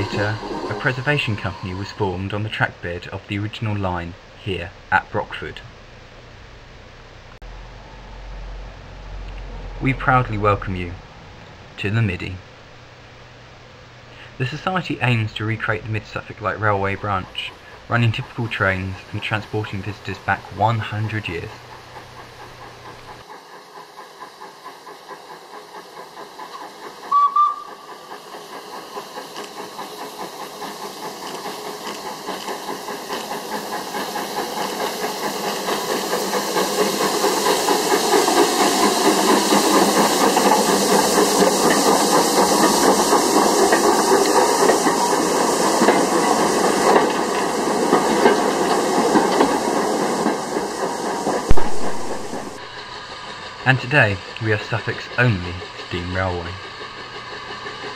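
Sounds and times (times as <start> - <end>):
steam locomotive exhaust beats: 0.0 - 57.9
steam whistle blast: 27.1 - 27.7
sharp knock: 51.5 - 52.1.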